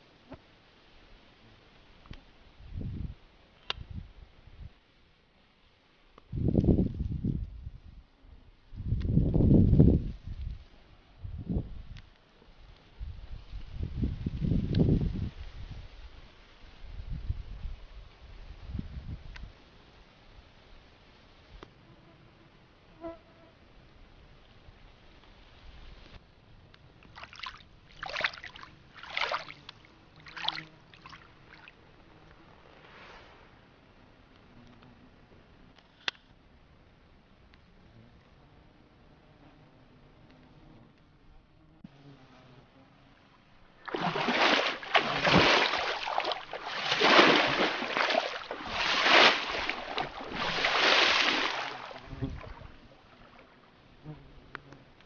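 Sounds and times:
hand splashing in water: 0:27.1 - 0:31.7, 0:43.8 - 0:52.8.

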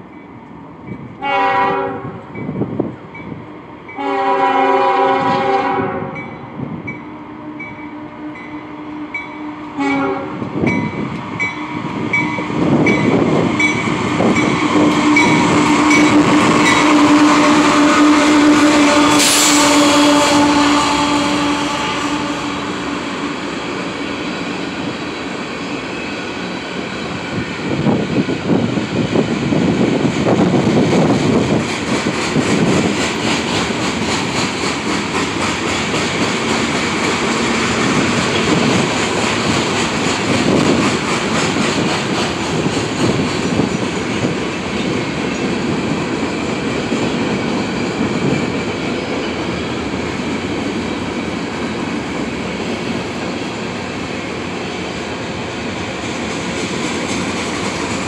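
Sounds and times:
train rolling noise: 0:00.0 - 0:58.0
train wheels clicking over rail joints: 0:26.2 - 0:58.0.

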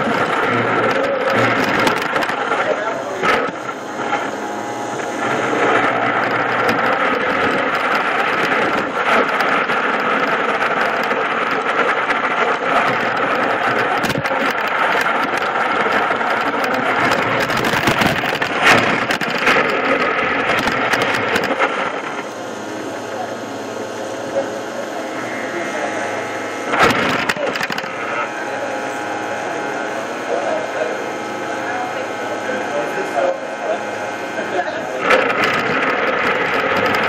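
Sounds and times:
robot motors and gearboxes whirring: 0:00.0 - 0:22.4, 0:24.3 - 0:29.0, 0:34.4 - 0:37.0
sharp jolt: 0:05.4 - 0:22.2, 0:26.7 - 0:28.2
wheels rolling over tile floor: 0:05.7 - 0:22.0, 0:35.0 - 0:37.0.

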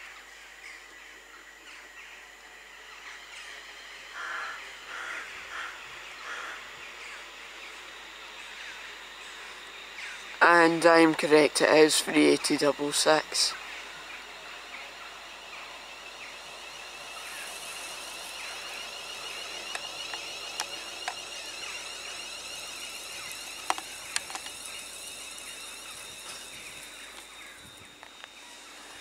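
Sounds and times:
electric train whine: 0:00.0 - 0:29.0
sharp clicks: 0:19.4 - 0:27.3.

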